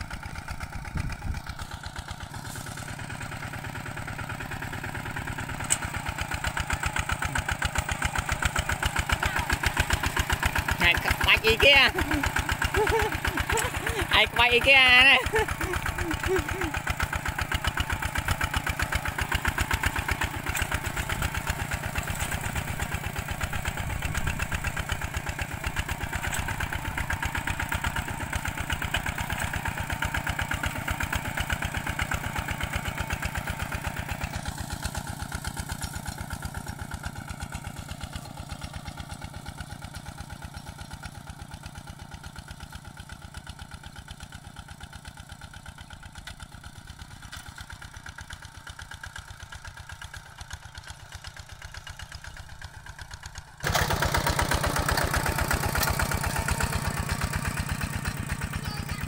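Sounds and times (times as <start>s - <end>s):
tractor engine running: 0.0s - 59.0s.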